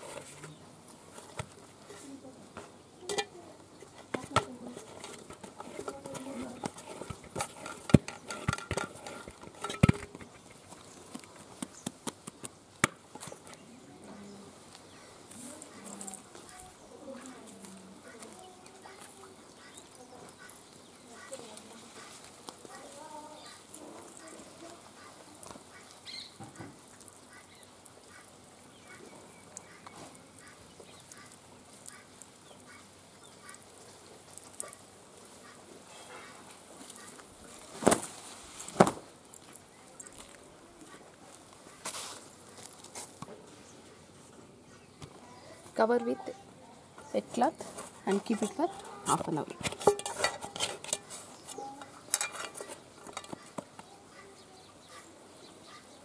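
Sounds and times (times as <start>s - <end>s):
utensils clinking metal bowl: 3.0s - 10.6s, 48.1s - 53.8s.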